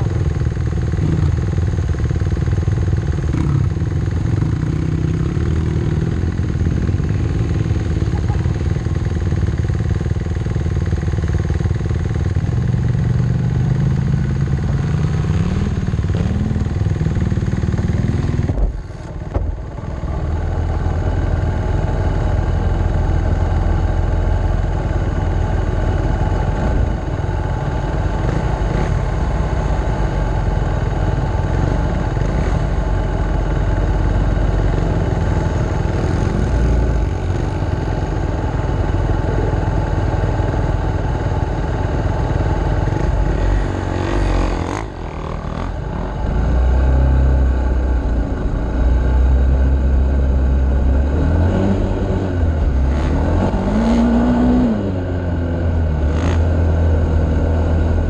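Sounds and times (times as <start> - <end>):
dirt bike engine revving and idling: 0.0 - 58.0.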